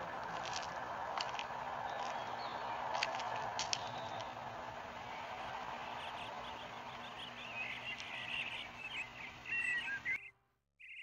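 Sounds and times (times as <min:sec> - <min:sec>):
footsteps on leaf litter: 0:00.0 - 0:04.4.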